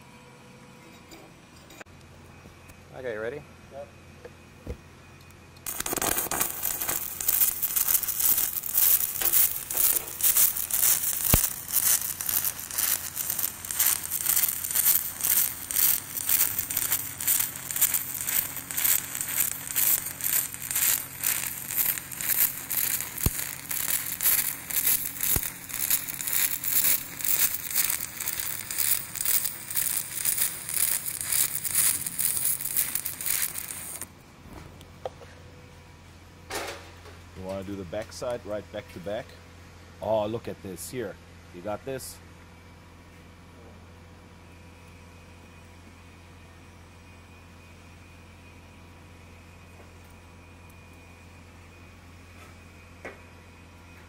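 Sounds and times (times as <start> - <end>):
pulsing welding arc crackle: 5.6 - 34.2.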